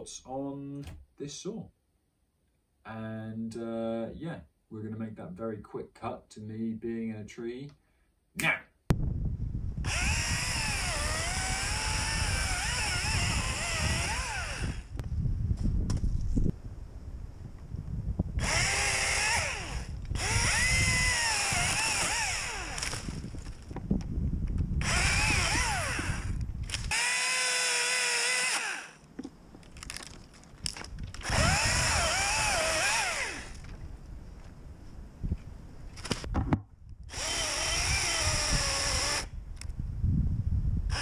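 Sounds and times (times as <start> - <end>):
chainsaw cutting branches: 9.8 - 15.0, 18.4 - 23.8, 24.8 - 29.1, 29.7 - 33.8, 37.1 - 39.3.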